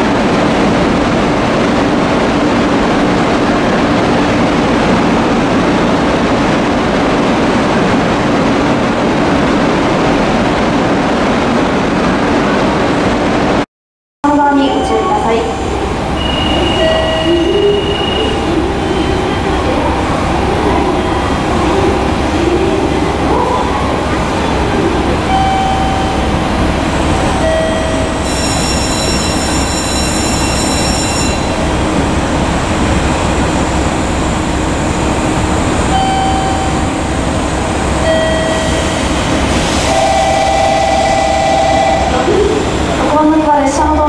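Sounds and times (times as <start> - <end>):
diesel railcar engine idling: 14.2 - 44.0
high electronic tone: 14.5 - 24.1, 24.7 - 31.9, 38.0 - 42.4
short beeps: 16.2 - 19.5, 25.3 - 26.4, 27.4 - 31.8, 35.9 - 36.9, 38.0 - 39.2.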